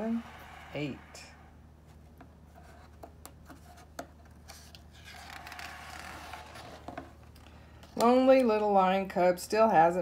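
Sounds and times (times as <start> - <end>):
page turning rustle: 4.4 - 7.4.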